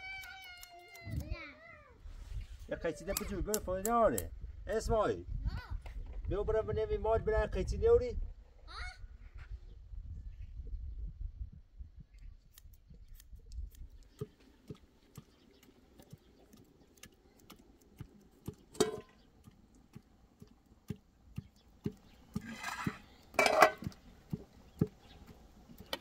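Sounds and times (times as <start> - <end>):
wood fire crackling: 12.6 - 26.0
pot and utensils scraping: 18.7 - 19.2, 22.3 - 24.0
metal clatter: 22.4 - 23.9.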